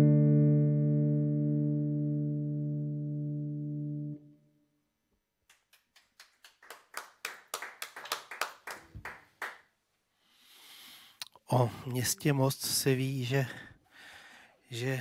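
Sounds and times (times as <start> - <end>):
sparse hand clapping: 5.4 - 9.6.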